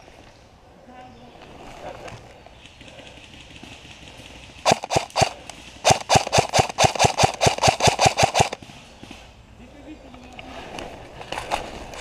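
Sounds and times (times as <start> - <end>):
airsoft rifle shots: 4.6 - 9.2.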